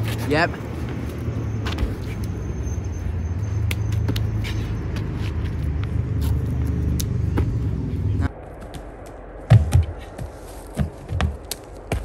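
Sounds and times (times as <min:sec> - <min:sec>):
low outdoor rumble: 0:00.0 - 0:12.0
feet and hands landing on stone: 0:08.6 - 0:12.0.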